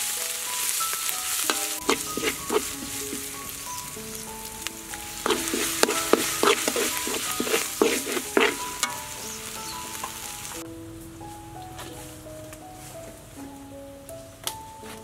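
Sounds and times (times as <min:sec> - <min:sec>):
herb paste sizzling in a wok: 0:00.0 - 0:12.3
soft background music: 0:00.0 - 0:15.0
metal spatula scraping a pan: 0:01.4 - 0:04.3, 0:05.1 - 0:10.3.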